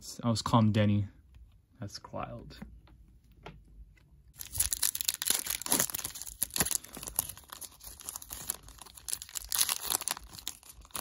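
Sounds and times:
foil wrapper tearing and crinkling: 4.4s - 11.0s.

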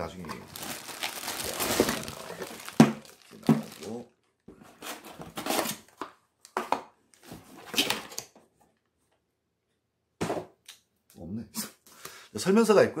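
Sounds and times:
plastic bag crinkling: 0.3s - 4.1s.

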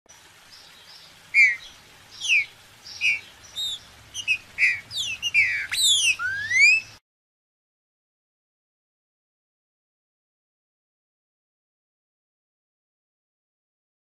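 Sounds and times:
bird singing whistled notes: 0.5s - 7.0s.

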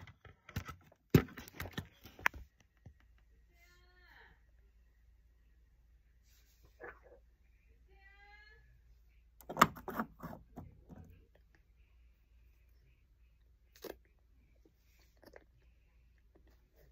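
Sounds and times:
hand handling phone: 9.4s - 11.0s.

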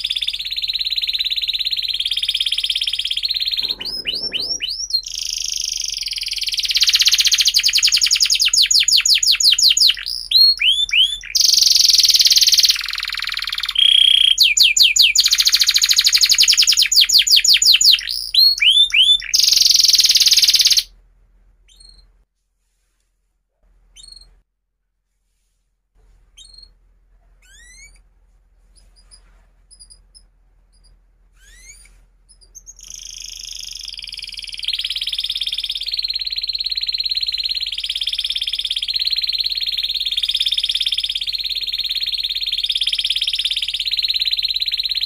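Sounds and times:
canary singing trills: 0.0s - 20.9s, 28.8s - 45.0s.

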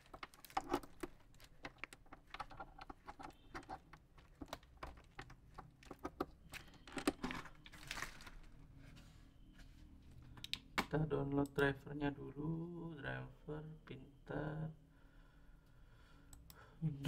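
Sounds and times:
plastic packaging rustling: 0.0s - 8.7s.

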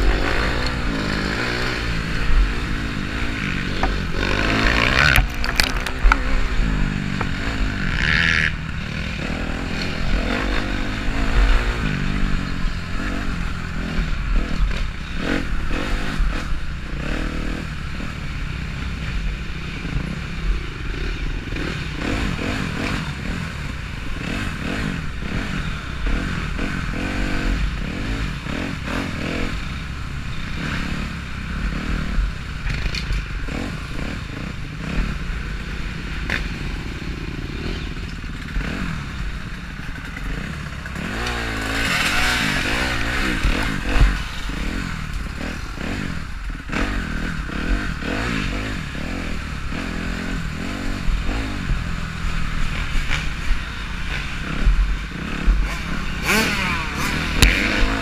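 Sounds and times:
dirt bike engine running: 0.0s - 58.0s
bike clattering over rough track: 3.2s - 8.8s, 36.2s - 48.3s.

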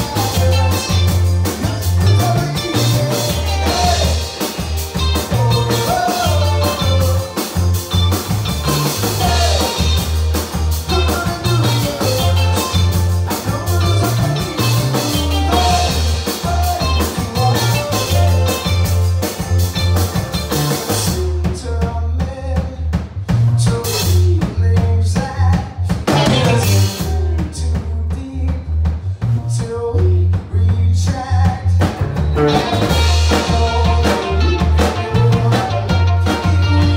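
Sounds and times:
electric guitars: 0.0s - 21.6s, 25.8s - 27.4s, 31.8s - 36.9s
drum kit: 0.0s - 36.9s
electric bass: 0.0s - 36.9s.

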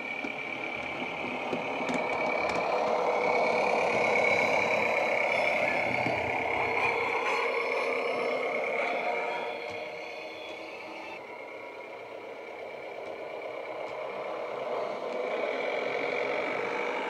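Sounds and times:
model diesel railbus engine sound: 0.0s - 17.0s.

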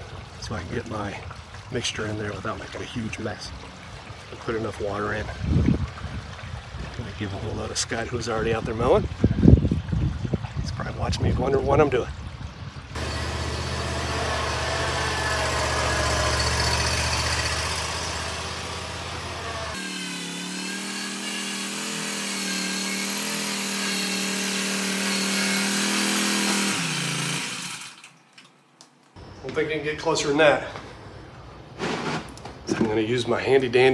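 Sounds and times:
riding lawn mower engine: 13.0s - 20.5s, 25.6s - 28.1s.

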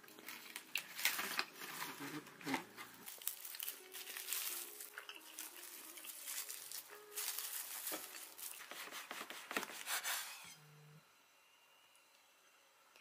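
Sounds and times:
plastic bags crinkling: 0.0s - 9.8s.

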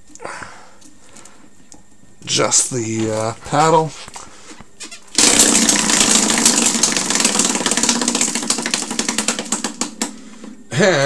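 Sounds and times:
prize wheel clicking: 5.2s - 10.1s.

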